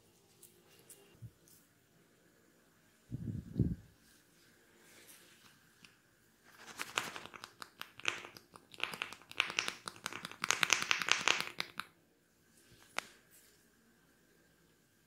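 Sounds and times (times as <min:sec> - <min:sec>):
fingers rubbing and tapping ear: 0:06.5 - 0:11.9.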